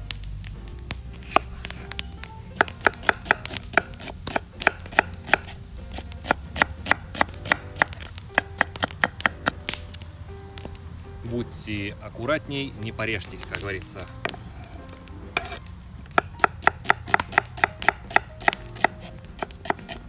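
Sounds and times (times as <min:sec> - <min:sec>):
knife chopping on wooden board: 0:01.2 - 0:02.0, 0:02.6 - 0:09.8, 0:15.4 - 0:20.0.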